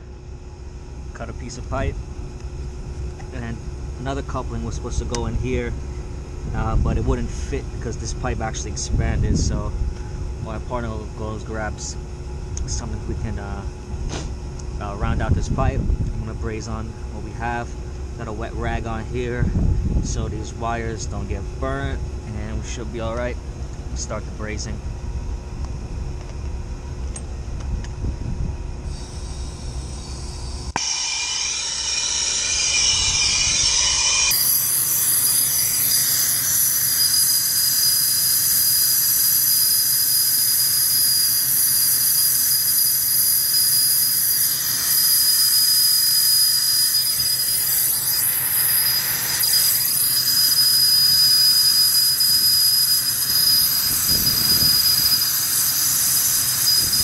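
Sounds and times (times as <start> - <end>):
low rumble: 18.6 - 34.4
thin high whistle: 28.9 - 57.0.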